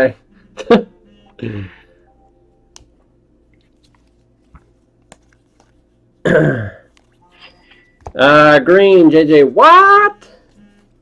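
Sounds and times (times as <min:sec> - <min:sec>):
trading cards clicking and rustling: 0:02.7 - 0:06.1, 0:06.9 - 0:07.2.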